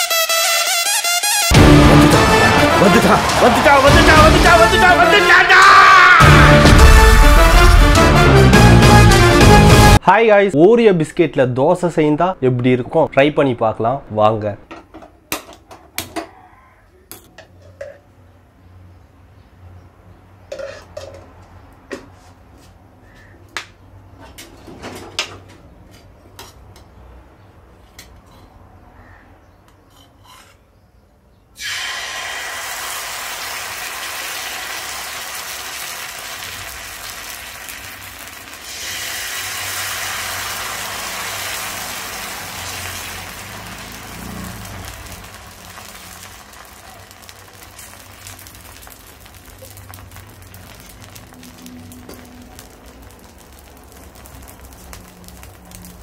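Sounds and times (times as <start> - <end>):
batter sizzling on hot griddle: 1.5 - 5.2, 31.6 - 56.0
kitchen utensils clattering: 20.5 - 21.4.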